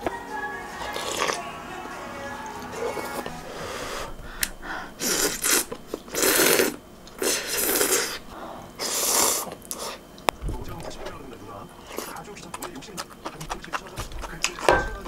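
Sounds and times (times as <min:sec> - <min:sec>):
person slurping noodles: 0:00.9 - 0:01.4, 0:05.0 - 0:10.0.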